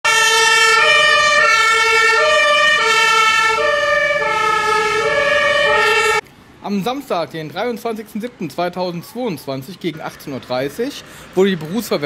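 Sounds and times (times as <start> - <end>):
two-tone fire engine siren: 0.0 - 6.2.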